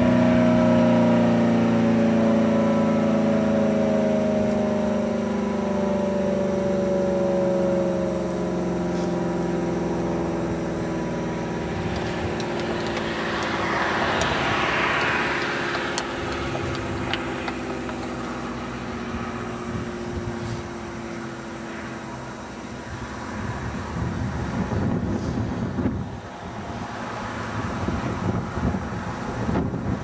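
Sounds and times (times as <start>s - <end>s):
rotating siren alert tone: 0.0s - 24.0s.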